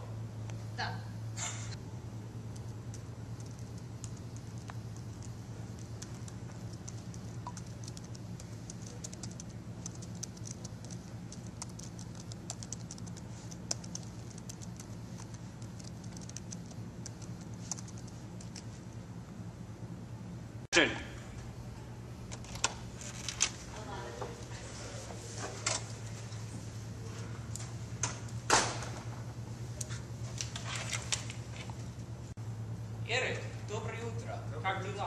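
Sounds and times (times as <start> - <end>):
low room hum: 0.0 - 35.0
laptop keyboard typing: 2.5 - 18.7.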